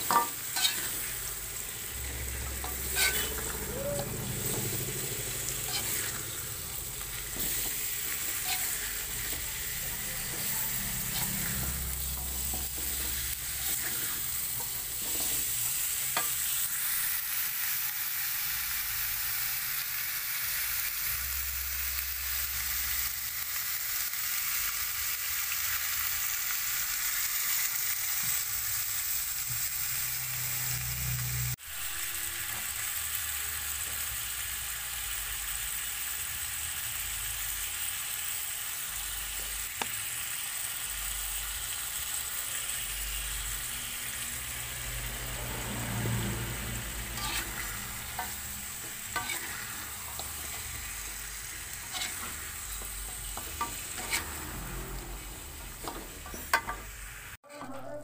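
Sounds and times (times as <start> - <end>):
metal spatula scraping wok: 0.0 - 17.9, 44.0 - 57.1
food sizzling in a wok: 0.0 - 58.0.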